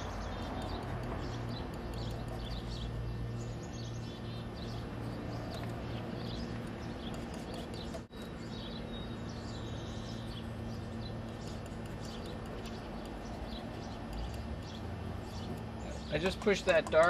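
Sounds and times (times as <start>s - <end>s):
birds chirping: 0.0s - 17.0s
low background hum: 0.0s - 17.0s.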